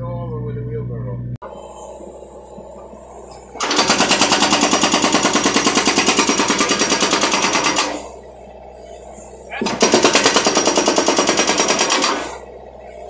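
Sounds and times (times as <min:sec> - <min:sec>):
excavator engine running: 0:00.0 - 0:13.0
hydraulic breaker pounding concrete: 0:03.5 - 0:08.2, 0:09.5 - 0:12.5.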